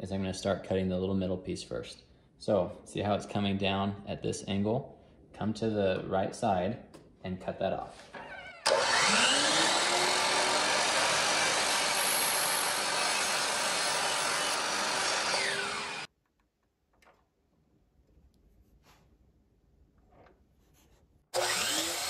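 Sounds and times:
miter saw cutting wood: 0:08.6 - 0:16.1, 0:21.3 - 0:22.0.

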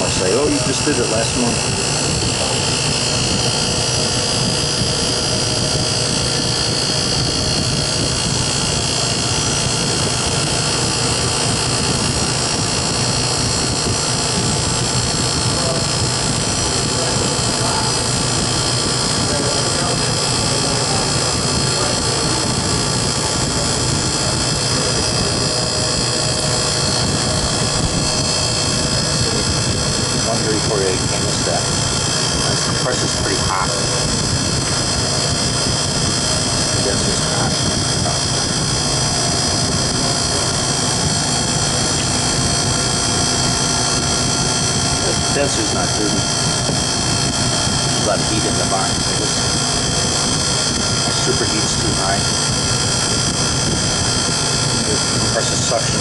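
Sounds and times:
compressor humming: 0:00.0 - 0:56.0
condenser fan blowing air: 0:00.0 - 0:56.0.

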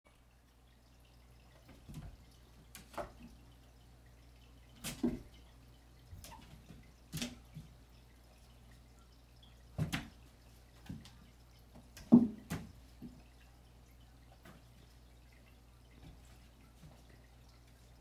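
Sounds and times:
cat paws thumping on wall: 0:09.8 - 0:10.1.

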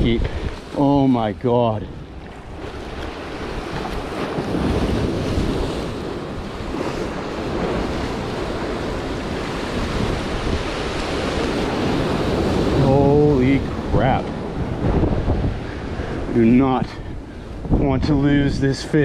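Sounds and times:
surf breaking over rocks: 0:00.0 - 0:16.9
wind buffeting microphone: 0:00.0 - 0:19.0.

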